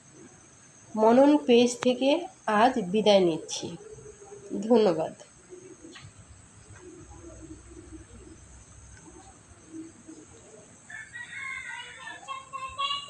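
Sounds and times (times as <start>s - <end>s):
rooster crowing: 10.4s - 13.0s.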